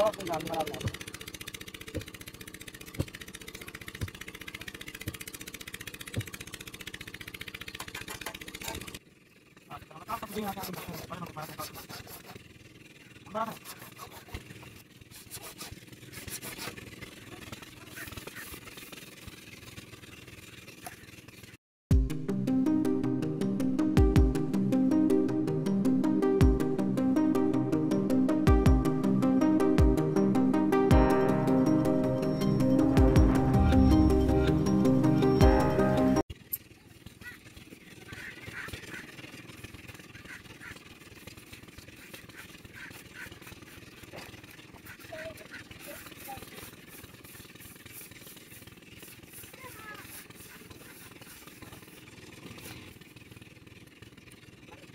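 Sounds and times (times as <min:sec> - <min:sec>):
motor rumbling: 0:00.0 - 0:54.9
hacksaw scraping plastic pipe: 0:10.1 - 0:12.4, 0:13.5 - 0:17.0.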